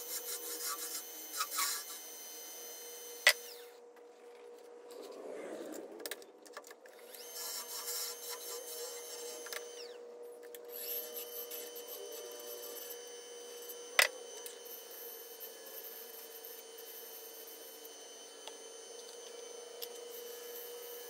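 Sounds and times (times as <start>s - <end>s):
wood lathe humming: 0.0s - 3.8s, 6.9s - 21.0s.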